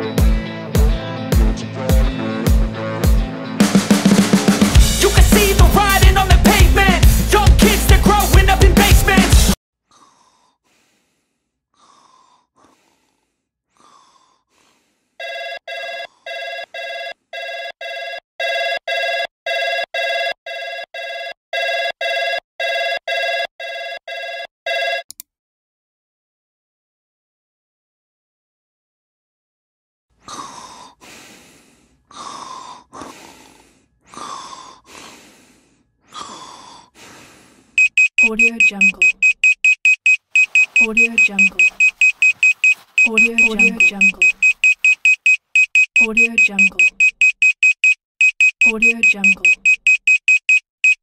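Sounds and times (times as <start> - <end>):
person breathing in sleep: 9.9 - 15.2, 30.2 - 37.8
boy snoring: 30.2 - 37.8
electronic alarm beeping: 37.8 - 51.0.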